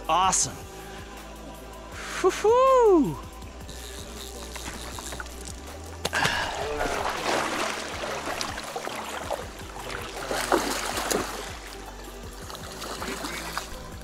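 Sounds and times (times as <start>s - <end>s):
fish thrashing and splashing water: 6.1s - 11.8s, 12.4s - 14.0s.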